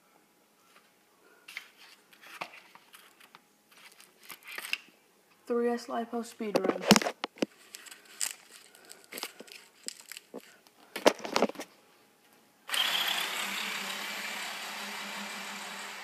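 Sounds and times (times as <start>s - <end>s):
toy motor and gearbox whining: 12.7s - 16.0s.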